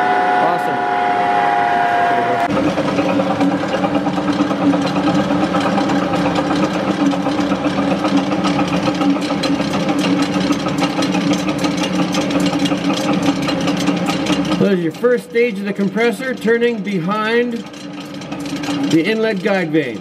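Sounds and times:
gas turbine mechanical hum: 0.0 - 20.0
rapid mechanical ticking: 2.5 - 20.0.

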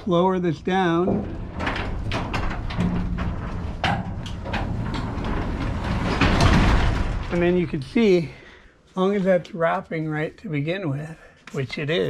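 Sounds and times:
garage door rollers rumbling: 0.0 - 8.6
roller and hinge clicks: 0.9 - 7.6.

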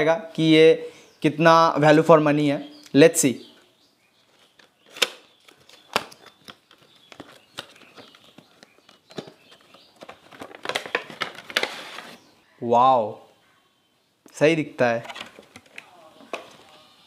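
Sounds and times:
plastic packaging crinkling: 4.2 - 12.2.

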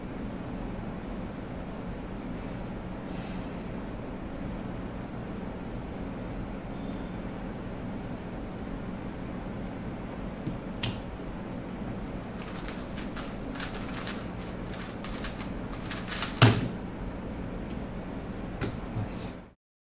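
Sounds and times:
low steady hum: 0.0 - 19.6
puzzle cube rapid clicking: 12.1 - 16.6.

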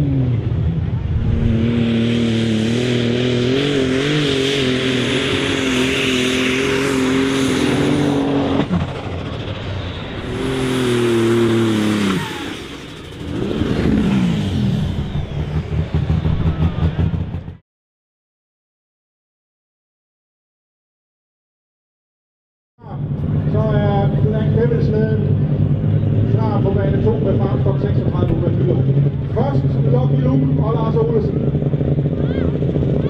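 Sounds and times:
tractor engine revving hard: 0.0 - 17.6.

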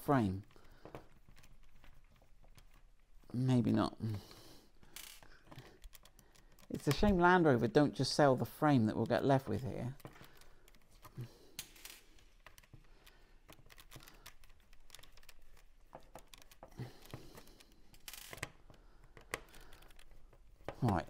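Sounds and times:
screwdriver clicks and taps: 12.4 - 17.4.

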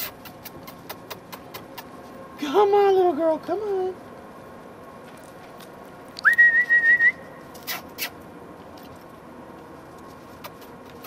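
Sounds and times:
person whistling: 6.2 - 7.3.

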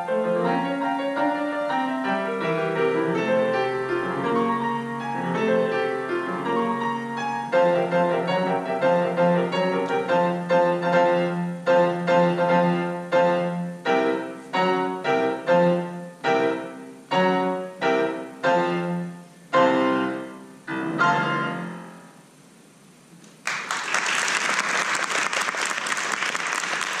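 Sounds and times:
grand piano chords: 0.0 - 23.1
audience applause: 23.4 - 27.0.

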